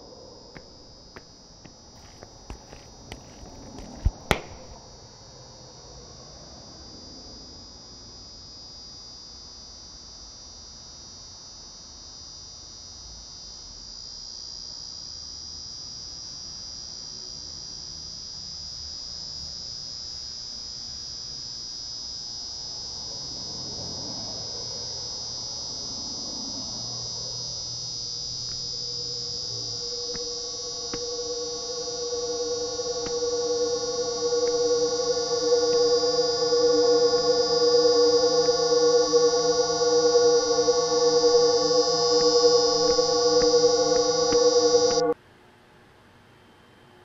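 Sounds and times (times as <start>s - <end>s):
high-pitched ringing drone: 0.0s - 45.2s
faint low hum: 23.3s - 45.2s
deep musical tones: 28.5s - 45.2s.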